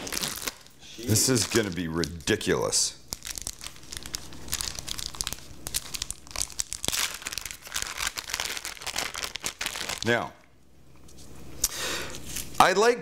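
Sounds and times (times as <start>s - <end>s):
plastic packaging crinkling: 0.0s - 10.2s.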